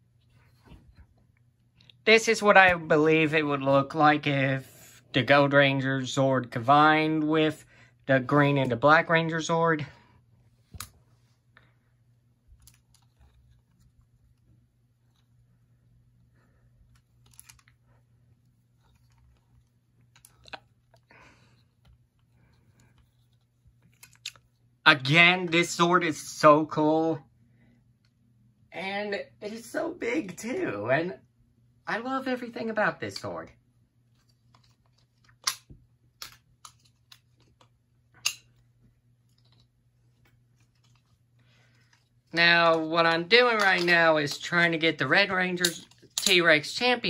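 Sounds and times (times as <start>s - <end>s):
low steady hum: 0.0s - 47.0s.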